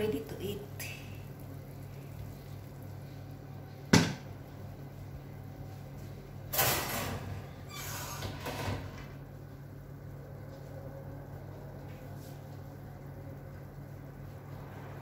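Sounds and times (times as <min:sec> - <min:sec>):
oven door shutting: 0:06.5 - 0:09.2
oven rack scraping: 0:06.5 - 0:09.2.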